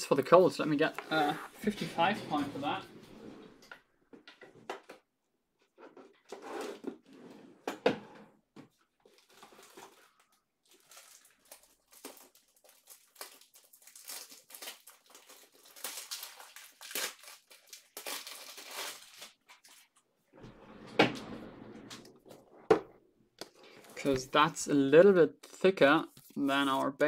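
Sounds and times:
plastic packaging crinkling: 9.0 - 19.9.

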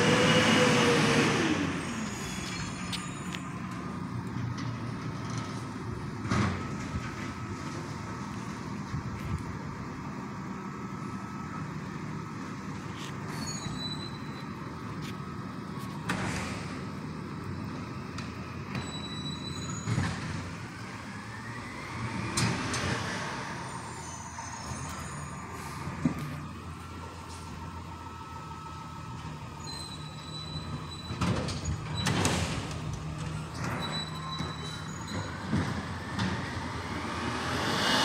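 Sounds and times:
garbage truck engine rumble: 0.0 - 38.0
rising whine: 35.8 - 38.0
sudden bursts of noise: 36.2 - 38.0.

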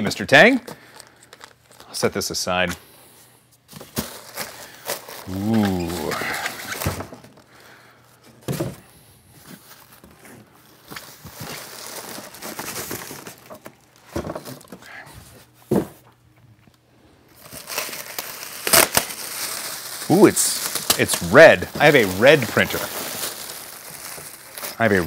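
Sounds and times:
plastic bag crinkling: 0.6 - 2.1, 3.8 - 8.0, 9.4 - 14.8, 17.3 - 25.0
styrofoam blocks handled: 3.7 - 7.7, 8.3 - 16.1, 17.3 - 25.0.

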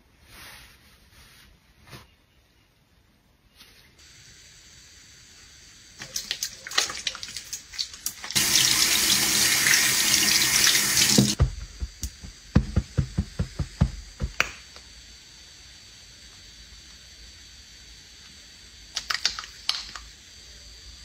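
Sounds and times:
sink tap running: 5.9 - 14.4
soapy hands squishing: 6.0 - 9.8
soft thumps: 11.2 - 14.4.

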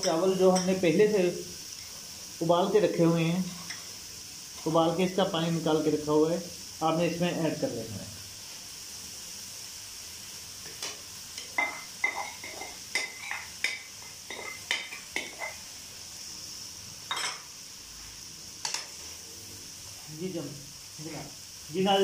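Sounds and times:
rice sizzling in wok: 0.0 - 22.0
spatula scraping and knocking pan: 10.7 - 15.6.

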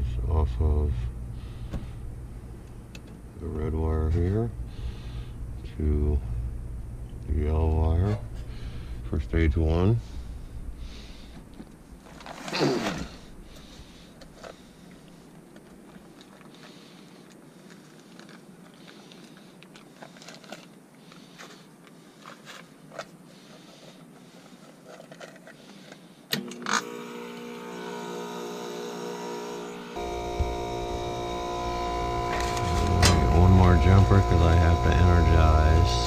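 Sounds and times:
heat pump humming: 0.0 - 16.0, 26.3 - 36.0
heat pump switch click: 30.0 - 34.6.

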